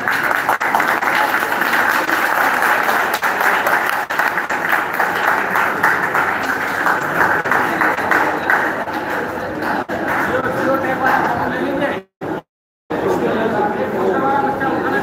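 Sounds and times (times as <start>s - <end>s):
crowd applauding: 0.0s - 11.3s.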